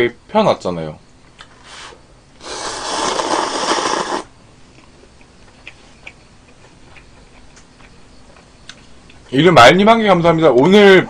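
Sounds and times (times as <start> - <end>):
noodles slurping: 2.4 - 4.3
quiet chewing: 2.4 - 9.3.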